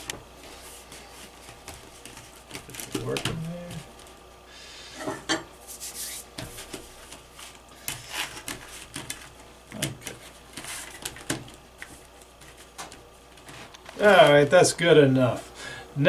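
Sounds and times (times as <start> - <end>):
hands rubbing dough in foil pans: 0.0 - 4.2, 5.6 - 15.6.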